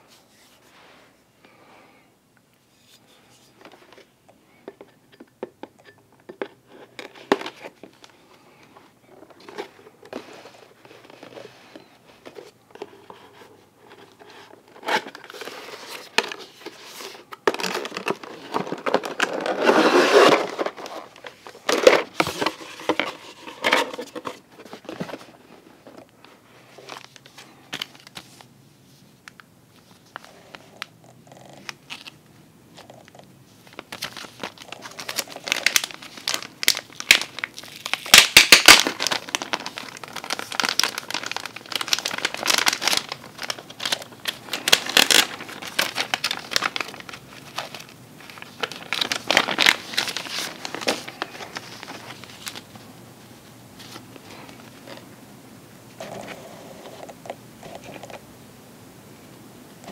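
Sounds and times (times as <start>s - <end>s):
cardboard packaging rustling: 5.8s - 28.5s, 32.8s - 52.9s
plastic bag crinkling: 32.8s - 52.8s.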